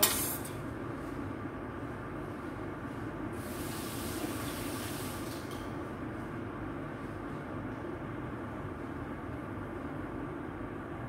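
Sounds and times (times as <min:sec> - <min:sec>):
extractor fan humming: 0:00.0 - 0:11.0.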